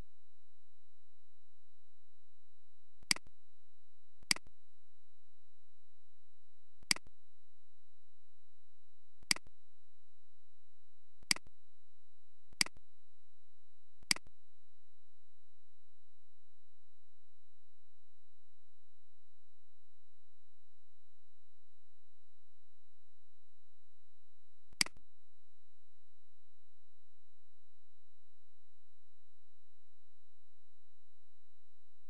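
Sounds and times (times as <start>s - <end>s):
faint steady hum: 0.0s - 32.0s
computer mouse clicks: 12.6s - 12.8s, 14.0s - 14.3s, 24.8s - 25.0s.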